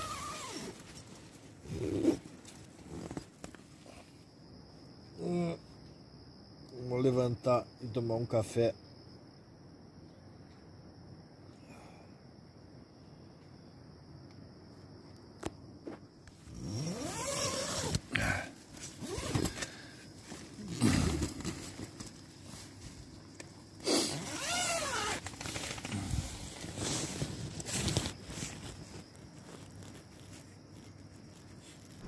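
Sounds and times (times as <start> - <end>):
tent zipper rasping: 0.0 - 3.6, 16.4 - 22.6, 23.8 - 32.0
fabric rustling: 16.4 - 32.0.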